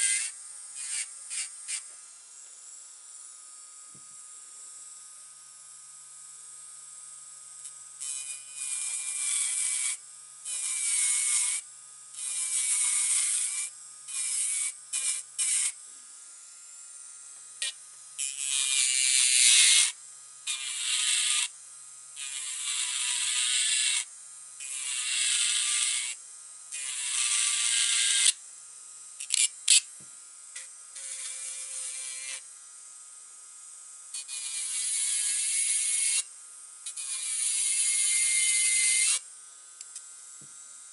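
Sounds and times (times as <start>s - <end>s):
electric nail drill grinding: 0.0s - 4.2s, 7.5s - 40.9s.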